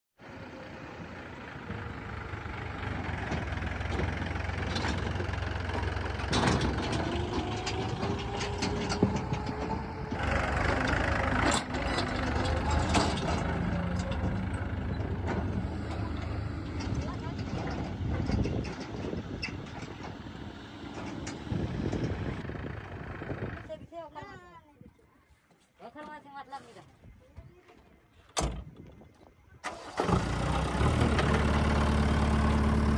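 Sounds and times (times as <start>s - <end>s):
tractor diesel engine running: 0.2s - 23.9s, 29.6s - 32.9s
knocks and rattles: 3.0s - 22.4s.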